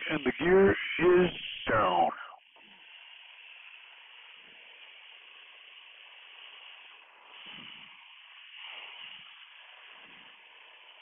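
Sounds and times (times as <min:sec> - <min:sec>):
headset intercom hiss: 0:00.0 - 0:02.4.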